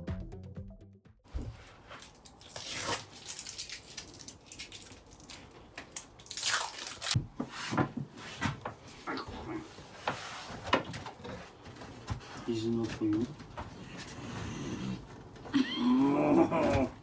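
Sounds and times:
vinyl flooring rustling and crackling: 7.1 - 15.6.

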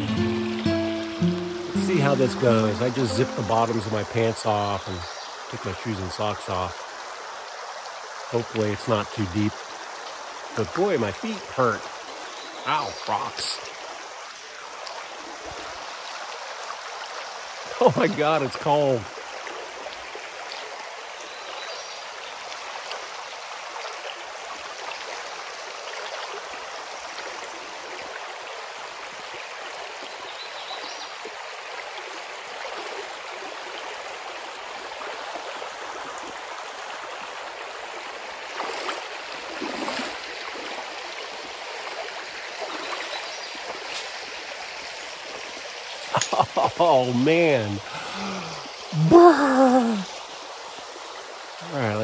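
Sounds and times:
rocky creek rushing: 0.0 - 52.0
wading splashes: 38.4 - 44.8.

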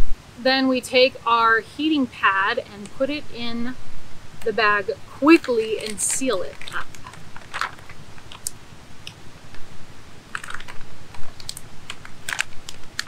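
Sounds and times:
plastic bag crinkling and clicking: 5.4 - 9.2, 10.3 - 13.0.

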